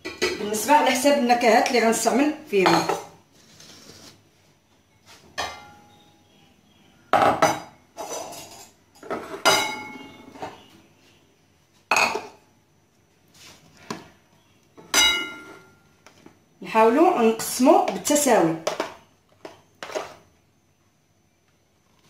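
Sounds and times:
bowls clinking and knocking: 2.6s - 3.2s, 7.2s - 10.6s, 11.9s - 12.4s.

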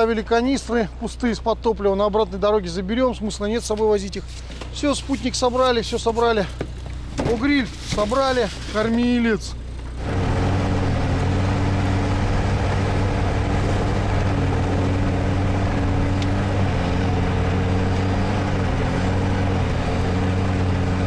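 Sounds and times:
atv engine running: 0.0s - 21.0s.

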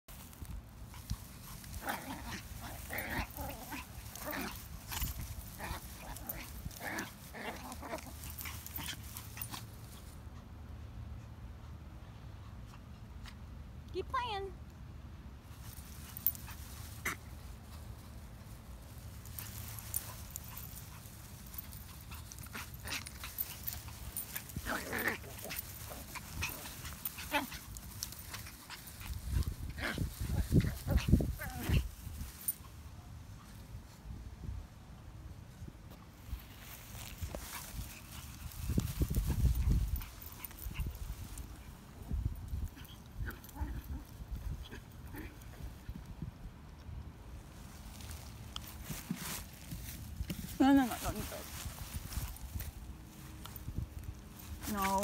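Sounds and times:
dogs scuffling in grass: 0.1s - 10.3s, 15.4s - 33.8s, 36.1s - 46.2s, 47.3s - 55.0s
small dogs vocalizing: 1.5s - 9.6s, 19.4s - 31.9s.

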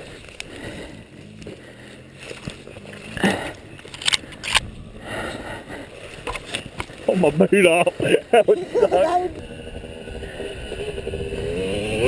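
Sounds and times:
twigs cracking: 0.0s - 7.4s
dirt and gravel crunching: 0.0s - 12.0s.

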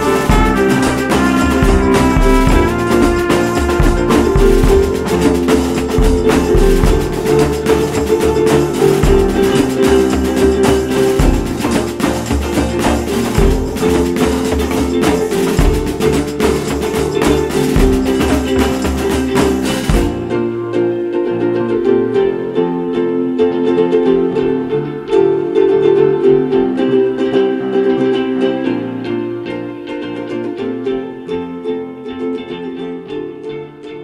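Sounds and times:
guitar music with percussion: 0.0s - 22.6s.

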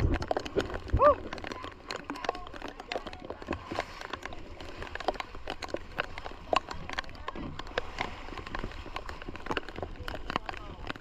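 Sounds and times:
rain drops tapping: 0.0s - 11.0s.

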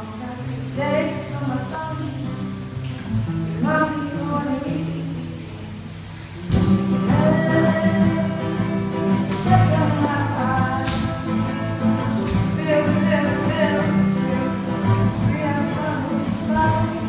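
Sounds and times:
person singing: 0.0s - 2.4s, 3.6s - 17.0s
acoustic guitar: 0.0s - 17.0s
high shaken sounds: 6.5s - 17.0s.

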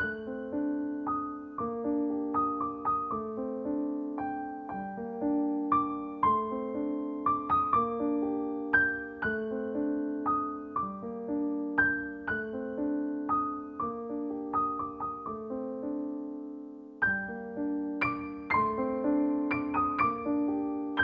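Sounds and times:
slow gentle piano music: 0.0s - 21.0s.

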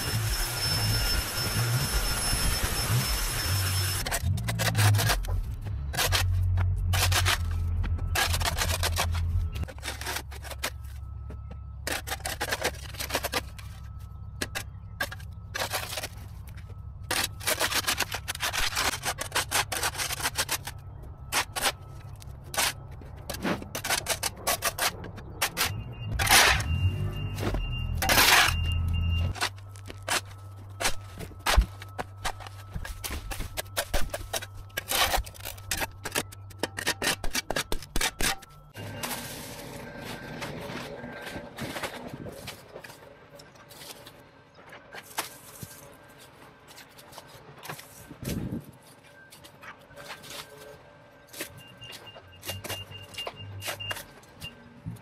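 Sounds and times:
steady motor noise: 0.0s - 9.8s
shovel scraping concrete: 2.2s - 11.1s, 11.8s - 43.0s, 44.9s - 48.7s.

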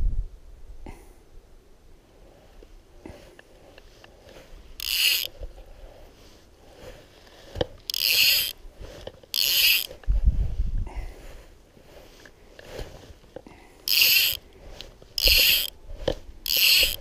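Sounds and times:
fly reel ratcheting: 4.8s - 5.4s, 7.5s - 10.0s, 13.8s - 17.0s.

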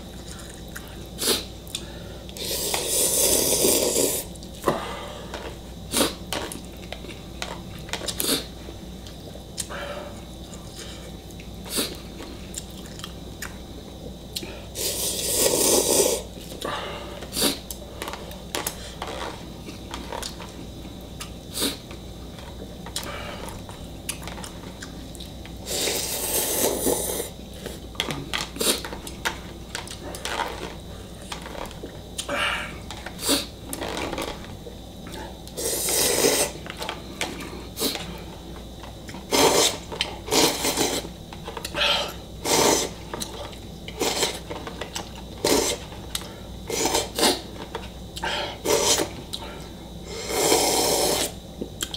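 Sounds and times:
person slurping noodles: 2.4s - 4.3s, 14.8s - 16.3s, 25.6s - 27.3s, 35.6s - 36.6s, 39.3s - 41.1s, 42.0s - 43.0s, 44.0s - 44.4s, 45.4s - 45.8s, 46.7s - 47.5s, 48.6s - 49.1s, 50.1s - 51.4s.

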